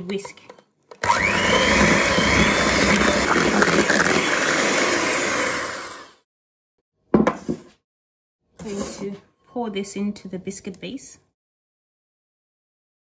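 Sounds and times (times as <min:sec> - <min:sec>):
electric hand mixer whisking: 0:00.9 - 0:06.2.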